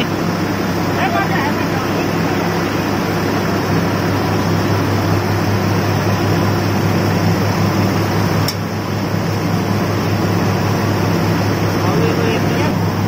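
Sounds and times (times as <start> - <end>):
rice mill droning: 0.0 - 13.0.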